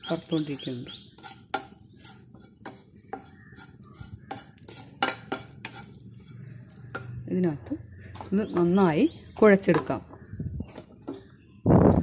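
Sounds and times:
spatula scraping a frying pan: 0.4 - 7.2.

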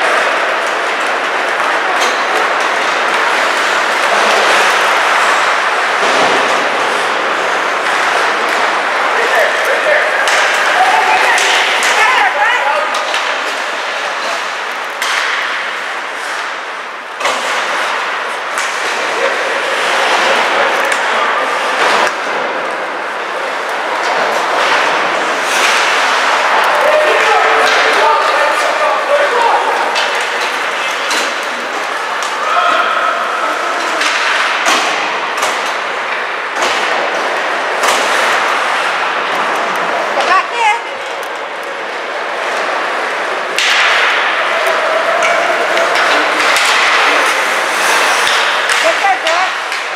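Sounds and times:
noisy rink background: 0.0 - 49.9
puck and stick knocks: 15.0 - 16.6, 33.8 - 39.8, 43.5 - 49.9.

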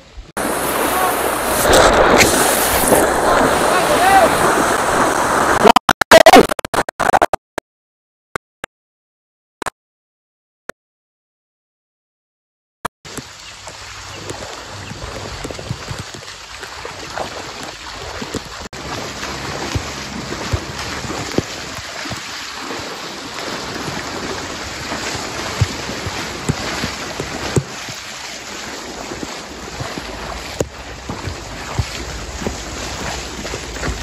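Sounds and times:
wind on microphone: 0.1 - 5.6, 14.1 - 28.0
fast-flowing water rushing: 0.4 - 5.7, 13.1 - 34.0.

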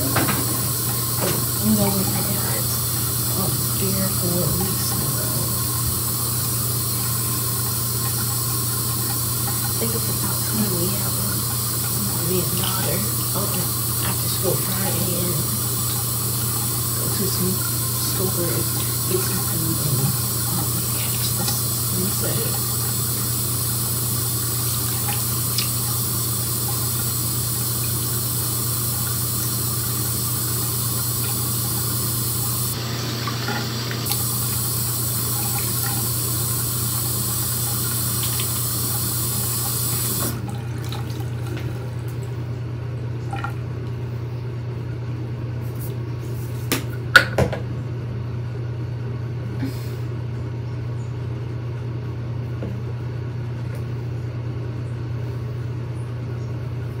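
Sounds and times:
sink tap running: 0.0 - 44.1.

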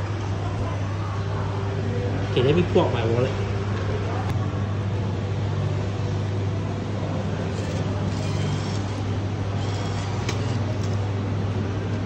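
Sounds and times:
low machine hum: 0.0 - 12.0
bill acceptor whirring: 7.3 - 11.1.

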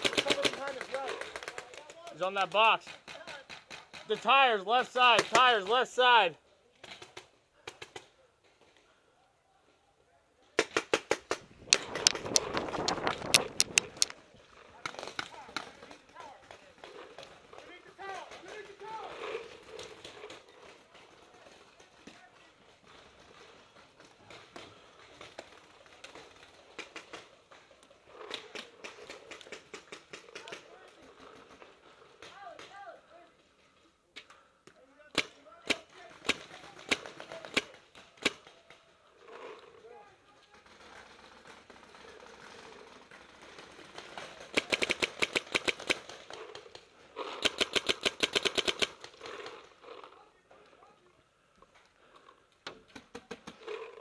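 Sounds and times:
paintball markers popping: 10.6 - 14.2.

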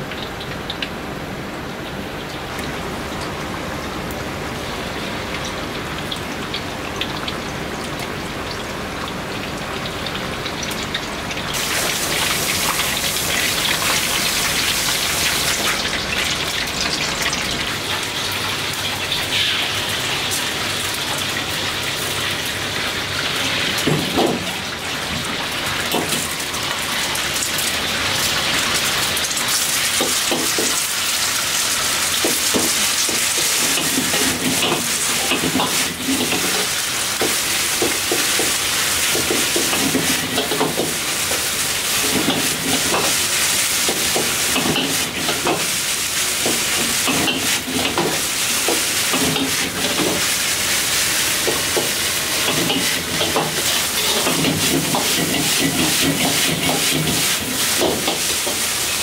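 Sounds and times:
hot oil sizzling and crackling: 0.0 - 59.0
stir-fry sizzling in wok: 0.0 - 59.0
metal ladle scraping wok: 52.5 - 57.2.

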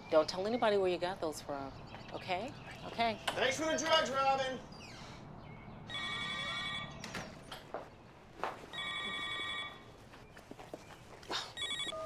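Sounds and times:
telephone ringing: 5.9 - 7.0, 8.7 - 9.9, 11.6 - 12.0.

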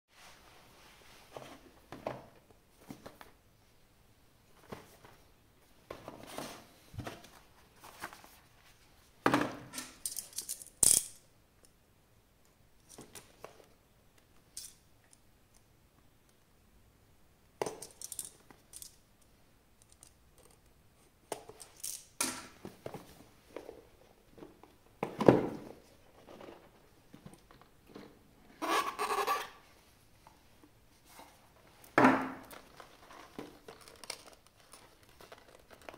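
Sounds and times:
cardboard and plastic packaging rustling: 4.5 - 9.2, 22.6 - 28.2, 30.9 - 35.9.

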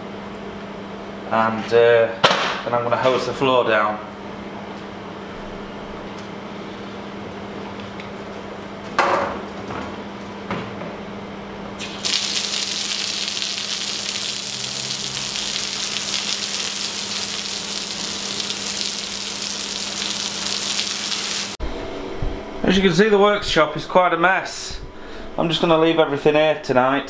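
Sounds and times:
water hose spraying on floor: 11.8 - 21.6.

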